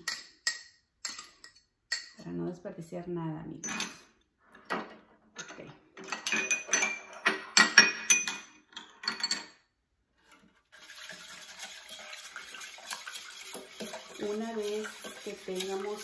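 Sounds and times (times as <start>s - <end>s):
whisk swishing in saucepan: 10.7s - 16.0s
fork scraping ceramic bowl: 10.8s - 16.0s.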